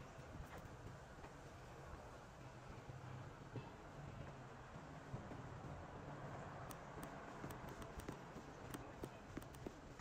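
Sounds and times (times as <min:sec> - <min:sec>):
faint ticks: 0:05.1 - 0:10.0.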